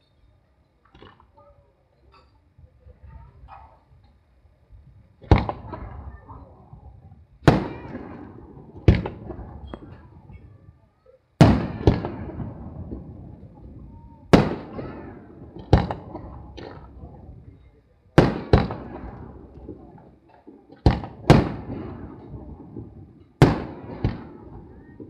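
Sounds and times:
firework shells bursting: 0:07.5 - 0:10.2, 0:11.4 - 0:17.2, 0:18.2 - 0:25.0.

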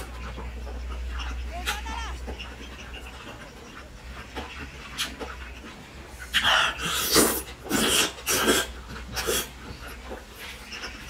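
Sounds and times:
wet slurping: 0:06.3 - 0:09.7.

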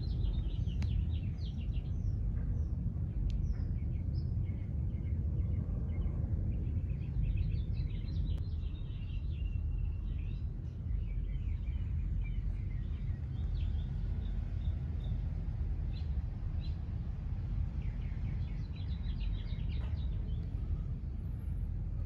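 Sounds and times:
small birds chirping: 0:00.0 - 0:22.0
steady low rumble: 0:00.0 - 0:22.0.

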